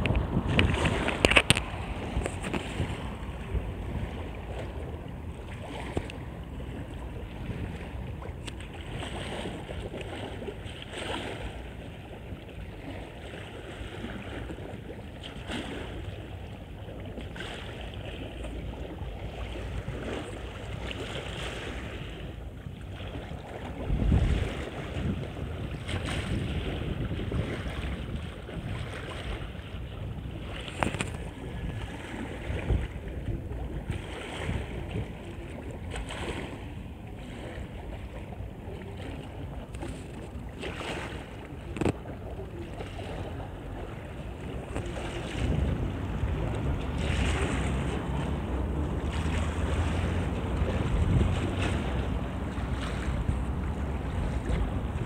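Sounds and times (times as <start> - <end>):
waves lapping against stone: 0.0 - 55.0
wind buffeting microphone: 0.0 - 55.0.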